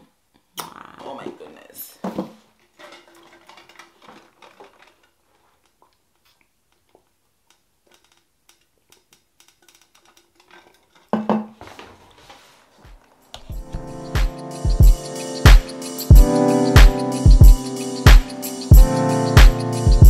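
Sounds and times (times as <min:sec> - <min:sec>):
music with drum beat: 0:13.4 - 0:20.0.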